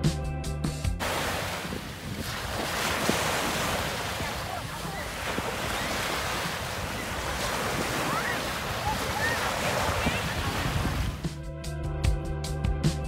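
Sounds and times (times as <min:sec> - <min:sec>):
sea waves washing on shore: 0:01.0 - 0:11.3
wind buffeting microphone: 0:01.0 - 0:11.3.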